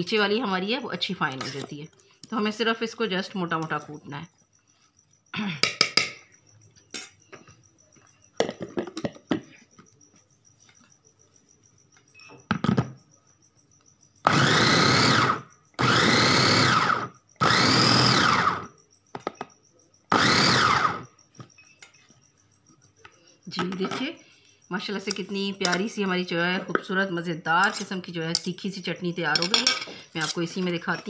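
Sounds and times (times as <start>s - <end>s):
lid knocks and clicks: 8.4s - 9.5s
electric food chopper whining: 14.2s - 18.7s, 20.1s - 21.1s.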